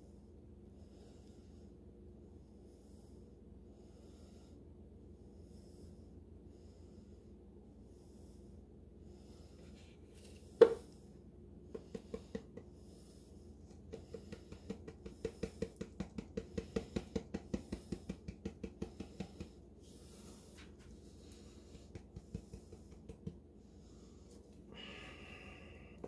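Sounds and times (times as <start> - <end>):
hand tapping plastic cup: 10.6 - 10.8, 11.8 - 12.7, 13.7 - 19.6, 21.7 - 23.4.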